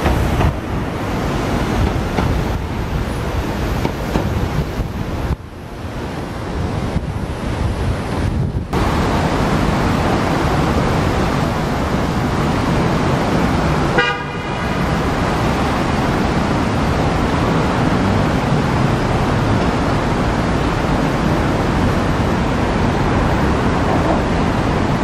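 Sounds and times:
city street traffic: 0:00.0 - 0:25.0
car horn toot: 0:13.9 - 0:14.8.

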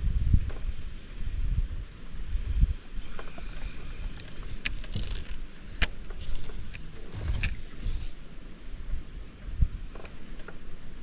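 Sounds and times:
wind rumble on microphone: 0:00.0 - 0:11.0
fishing reel clicks: 0:04.1 - 0:08.2.

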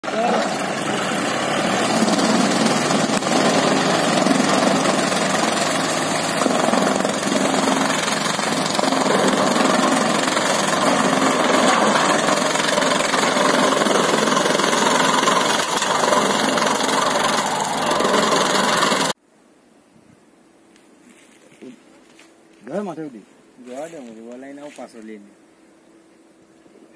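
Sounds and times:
blade shredding stalks: 0:00.0 - 0:19.2
tractor engine under load: 0:00.0 - 0:19.2.

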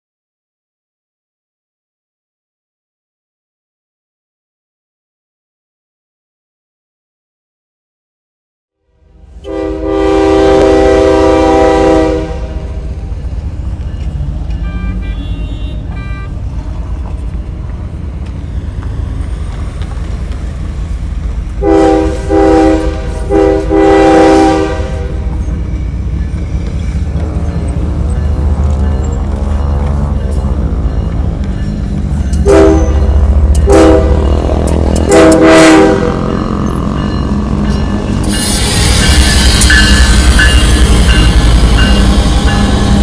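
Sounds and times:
locomotive air horn blasts: 0:09.0 - 0:12.9, 0:14.6 - 0:16.4, 0:21.6 - 0:25.3, 0:32.4 - 0:36.4
locomotive engine rumbling: 0:09.1 - 0:43.0.

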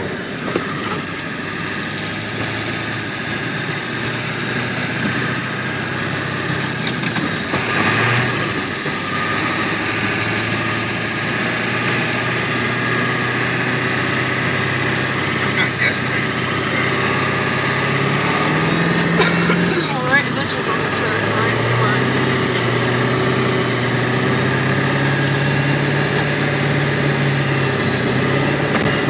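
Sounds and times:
truck engine running: 0:00.0 - 0:29.0
rush of noise: 0:15.1 - 0:24.0.

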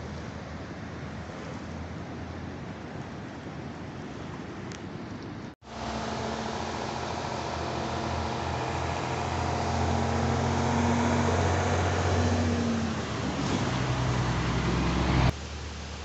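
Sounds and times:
vehicle engine running: 0:05.6 - 0:15.3
fast river rushing: 0:05.6 - 0:16.0.

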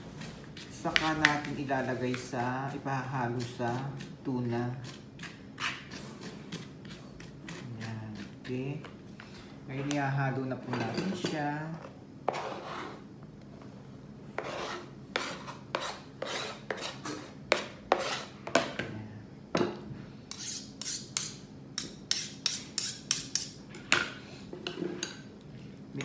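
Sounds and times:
knife scraping cutting board: 0:04.8 - 0:08.5, 0:11.8 - 0:13.1, 0:14.4 - 0:18.4, 0:20.3 - 0:23.6.

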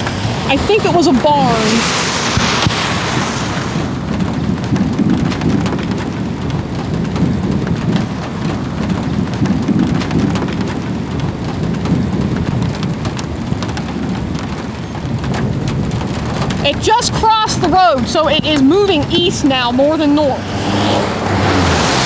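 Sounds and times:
steady low rumble: 0:00.0 - 0:16.9
rain pattering on car roof: 0:00.0 - 0:22.0.

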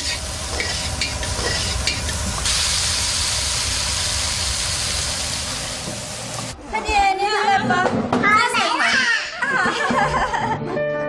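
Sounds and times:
spatula scraping wok: 0:00.0 - 0:02.7
food sizzling in oil: 0:00.0 - 0:06.6.

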